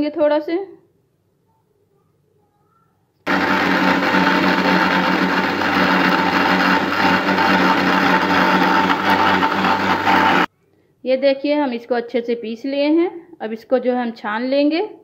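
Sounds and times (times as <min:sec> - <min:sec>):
mixer grinder motor blending: 0:03.3 - 0:10.5.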